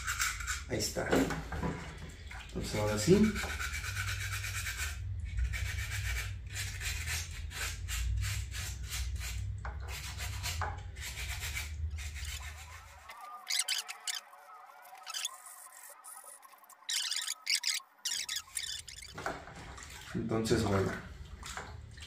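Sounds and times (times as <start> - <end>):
hand scrubbing cement: 3.0 - 14.2.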